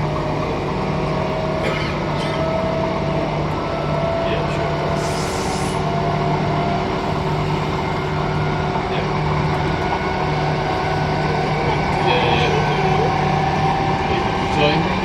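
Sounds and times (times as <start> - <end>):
electrical hum: 0.0 - 15.0
pulsing low hum: 0.0 - 15.0
train interior rumble: 0.0 - 15.0.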